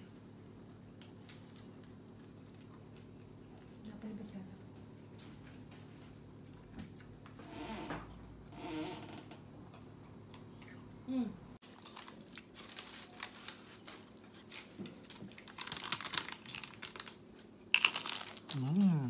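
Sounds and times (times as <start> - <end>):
crisp pizza crust crunching: 11.6 - 19.0.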